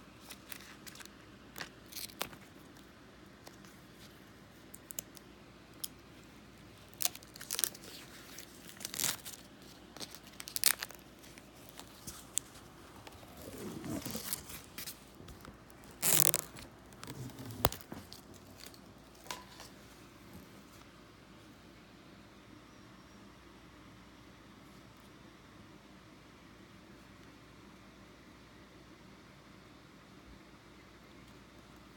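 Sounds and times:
paper packaging rustling and tearing: 0.2s - 2.7s, 6.8s - 19.8s.

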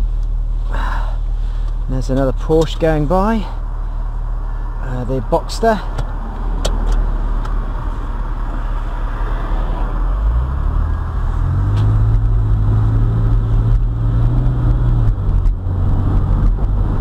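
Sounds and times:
car engine under way: 0.0s - 17.0s
tyre and wind noise: 5.9s - 17.0s.

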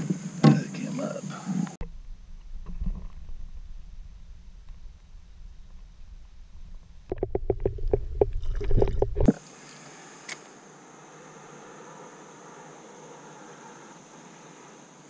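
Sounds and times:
faint hiss: 0.0s - 7.1s, 9.3s - 15.0s
wind rumble on microphone: 1.3s - 9.3s.

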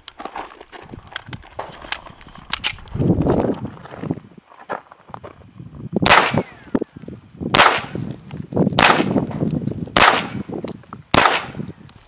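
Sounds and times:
pistol shots with echo: 6.0s - 6.6s, 7.5s - 8.0s, 8.8s - 9.3s, 10.0s - 10.5s, 11.1s - 11.7s.

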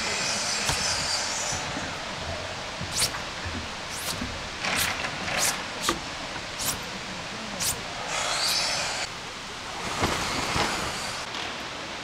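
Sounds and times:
broom sweeping wooden deck: 0.0s - 9.1s.

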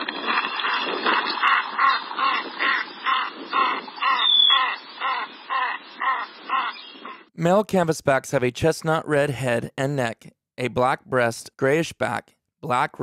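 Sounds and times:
duck harsh calls: 1.4s - 7.3s.

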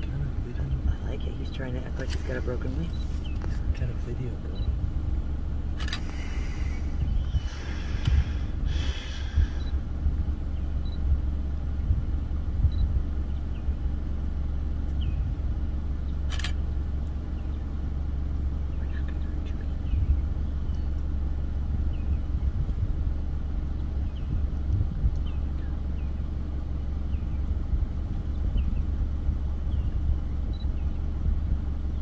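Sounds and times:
steady low rumble: 0.0s - 32.0s
sharp click: 5.8s - 6.2s, 16.3s - 17.2s.

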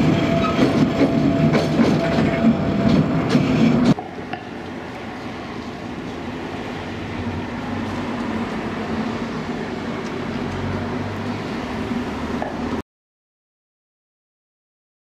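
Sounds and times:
electric train humming: 0.0s - 12.8s
train wheel noise: 0.0s - 12.8s.

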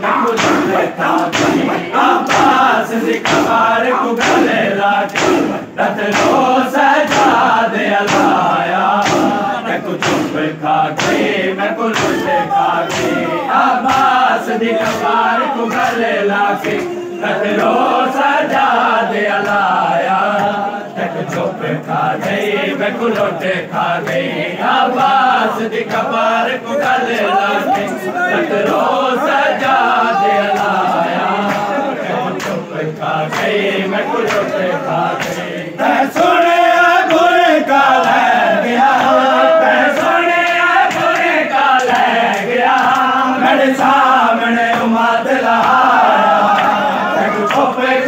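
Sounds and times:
men chanting together: 0.0s - 48.0s
hands slapping chests: 0.1s - 17.0s, 30.5s - 32.7s, 33.3s - 37.3s, 37.9s - 43.2s.

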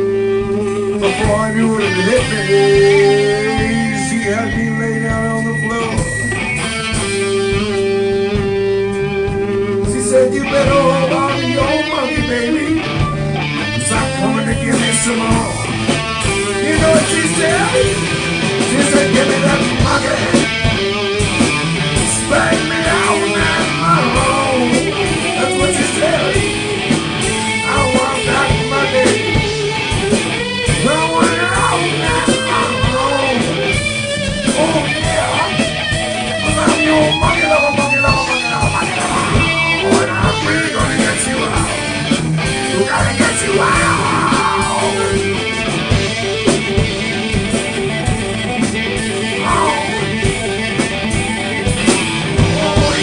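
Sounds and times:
person singing into microphone: 0.0s - 6.2s, 9.8s - 13.0s, 13.6s - 15.7s, 16.6s - 18.0s, 22.2s - 26.8s, 27.5s - 29.5s, 30.8s - 33.7s, 34.4s - 35.7s, 36.3s - 41.9s, 42.6s - 45.3s, 49.4s - 50.2s, 52.4s - 53.0s
drum kit: 0.0s - 53.0s
electric guitars: 0.0s - 53.0s.

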